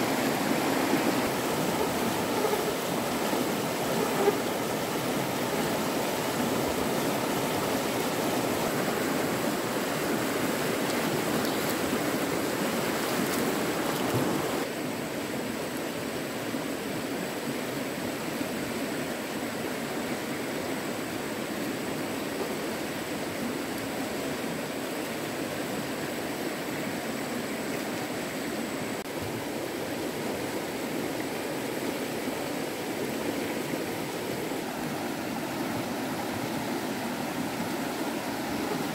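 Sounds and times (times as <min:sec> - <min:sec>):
stream water rushing: 0:00.0 - 0:38.9.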